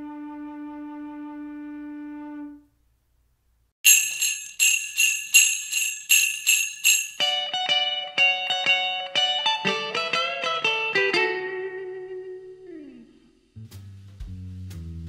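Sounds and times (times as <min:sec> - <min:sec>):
jingle bells shaken: 0:03.8 - 0:07.5
plucked guitar notes: 0:07.2 - 0:13.4.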